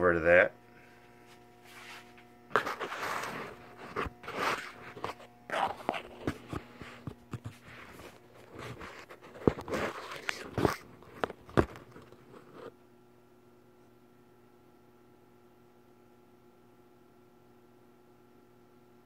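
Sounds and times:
faint electrical hum: 0:00.0 - 0:19.0
footsteps: 0:00.8 - 0:12.0.

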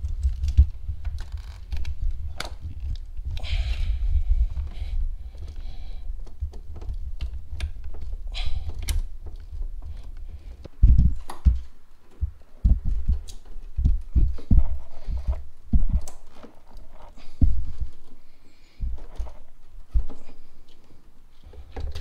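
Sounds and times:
low rumble: 0:00.0 - 0:07.5, 0:12.2 - 0:16.1
dull thumps and knocks: 0:06.2 - 0:18.1.

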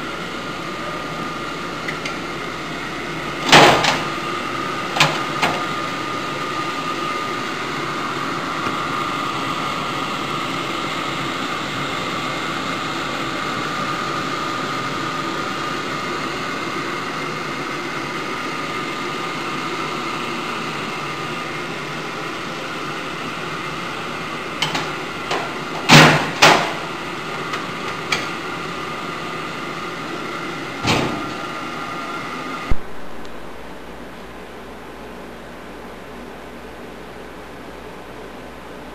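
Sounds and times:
printer humming and whining: 0:00.0 - 0:38.9.

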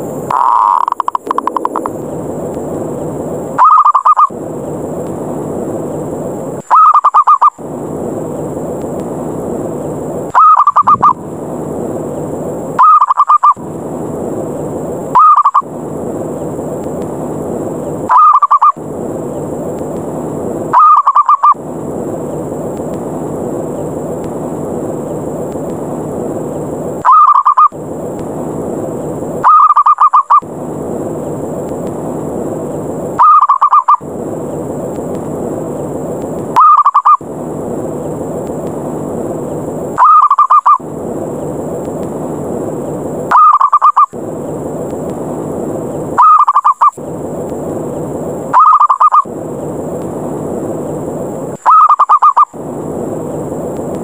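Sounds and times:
steady hiss: 0:00.0 - 0:54.0
dove trilled cooing: 0:03.6 - 0:04.3, 0:06.7 - 0:07.6, 0:10.3 - 0:11.2, 0:12.8 - 0:13.6, 0:15.2 - 0:15.6, 0:18.1 - 0:18.8, 0:20.7 - 0:21.6, 0:27.0 - 0:27.7, 0:29.4 - 0:30.4, 0:33.2 - 0:34.0, 0:36.6 - 0:37.2, 0:40.0 - 0:40.8, 0:43.3 - 0:44.1, 0:46.2 - 0:46.9, 0:48.5 - 0:49.3, 0:51.6 - 0:52.5.

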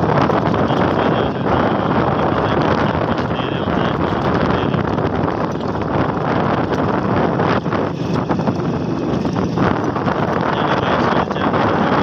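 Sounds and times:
vehicle running: 0:00.0 - 0:12.0
wind noise on microphone: 0:00.0 - 0:12.0.

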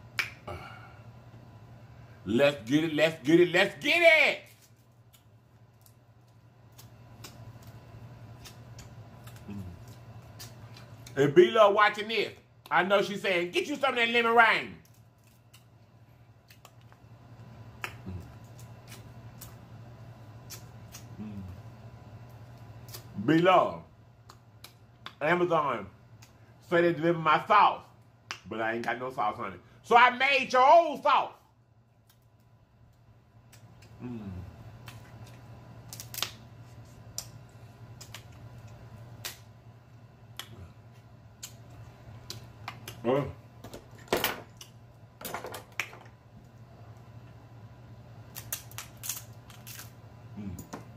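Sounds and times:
low steady hum: 0:00.0 - 0:50.9
crab shell cracking: 0:04.6 - 0:11.2, 0:14.8 - 0:15.8, 0:16.4 - 0:17.0, 0:34.8 - 0:36.4, 0:37.1 - 0:39.5, 0:48.3 - 0:50.0
crab shell clicks and snaps: 0:06.7 - 0:07.8, 0:16.4 - 0:17.0, 0:17.8 - 0:19.6, 0:24.2 - 0:25.2, 0:34.8 - 0:36.4, 0:37.1 - 0:39.5, 0:48.3 - 0:49.9.

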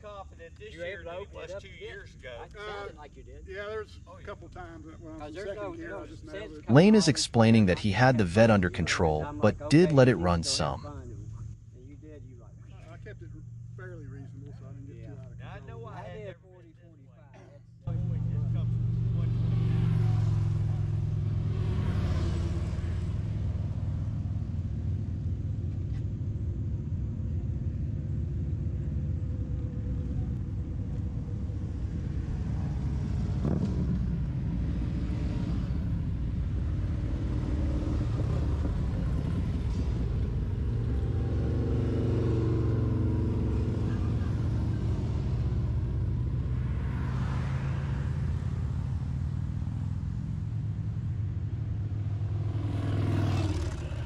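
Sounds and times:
vehicle engine running: 0:06.0 - 0:16.9, 0:17.7 - 0:54.0
wind and road rush: 0:18.0 - 0:54.0.

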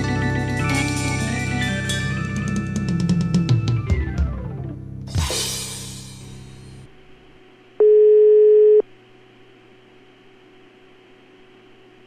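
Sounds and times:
music jingle: 0:00.0 - 0:04.8
cymbal crash: 0:05.1 - 0:06.9
telephone ringback tone: 0:07.8 - 0:08.8.

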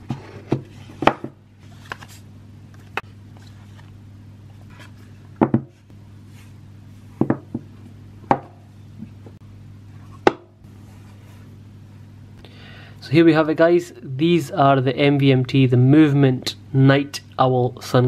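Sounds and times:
steady low hum: 0:00.0 - 0:18.0
knocks and taps on boxes: 0:07.2 - 0:07.7.

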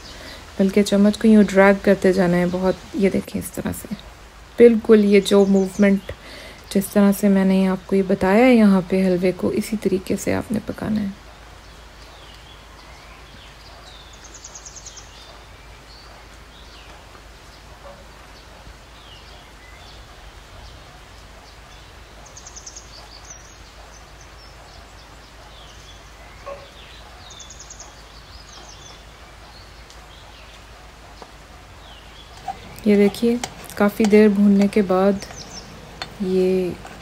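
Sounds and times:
simmering hiss with pops: 0:00.0 - 0:37.0.

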